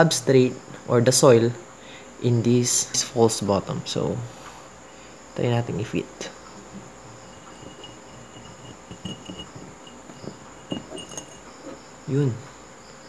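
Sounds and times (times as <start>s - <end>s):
insects chirping: 0.0s - 13.0s
wire mesh tapping and scraping glass: 6.6s - 11.8s.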